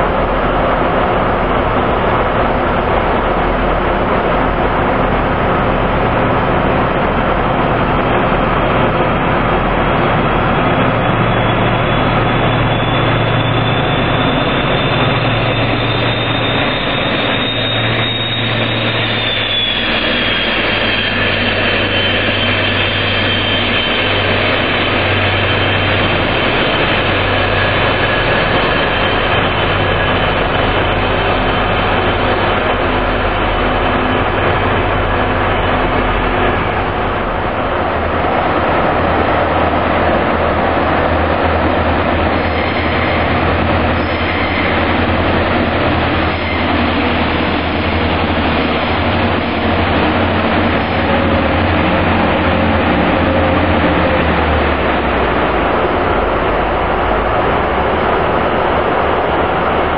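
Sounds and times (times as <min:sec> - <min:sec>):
diesel engine hum: 0:00.0 - 0:59.9
train moving slowly along platform: 0:00.0 - 0:59.9.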